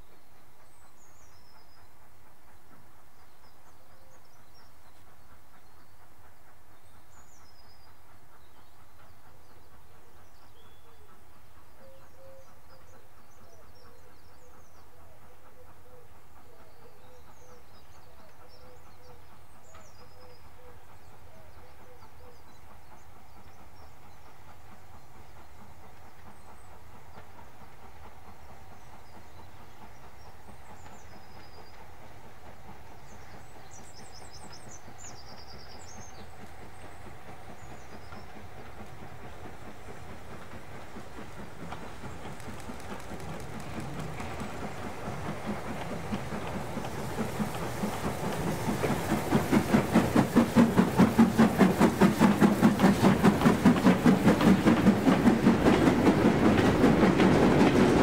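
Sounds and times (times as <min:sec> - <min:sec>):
steam locomotive running: 0:00.0 - 0:58.0
birds chirping: 0:16.4 - 0:58.0
wagons rattling on track: 0:33.1 - 0:58.0.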